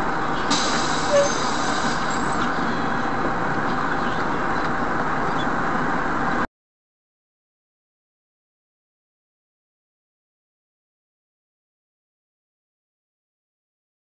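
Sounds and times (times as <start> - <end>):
vehicle road and engine noise: 0.0 - 6.5.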